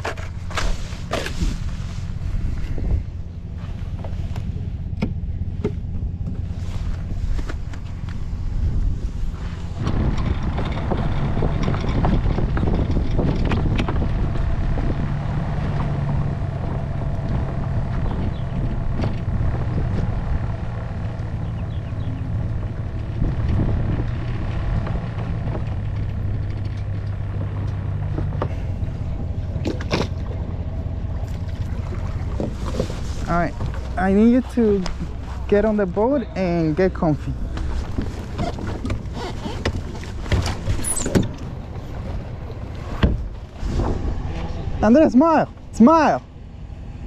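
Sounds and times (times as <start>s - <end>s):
tow vehicle drone: 0.0s - 47.0s
knocks and rattles: 9.7s - 35.3s.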